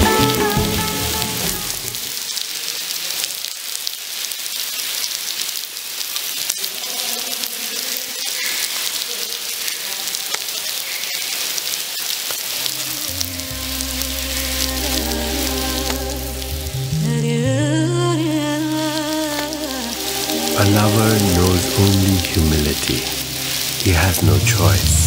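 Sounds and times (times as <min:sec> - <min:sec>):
music with low notes: 0:00.0 - 0:02.0, 0:13.0 - 0:25.0
heavy rain splashing into puddles: 0:00.0 - 0:25.0
drips ticking: 0:18.9 - 0:25.0.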